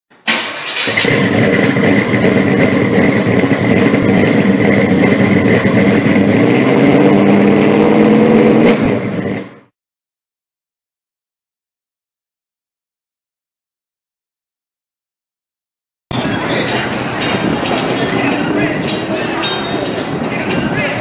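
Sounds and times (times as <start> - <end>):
vehicle engine revving: 0.4 - 9.7.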